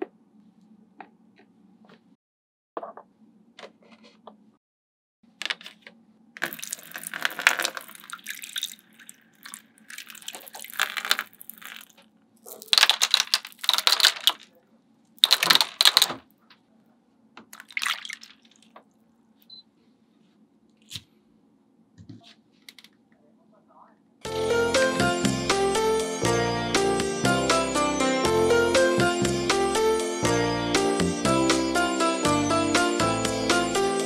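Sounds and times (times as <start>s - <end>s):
pebbles clattering into tray: 6.4s - 14.5s, 15.2s - 16.2s.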